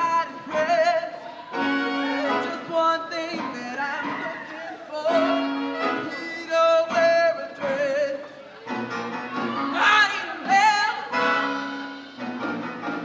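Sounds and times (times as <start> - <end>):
woman singing into a microphone: 0.0 - 8.3, 9.7 - 11.2
show-choir music: 0.0 - 13.0.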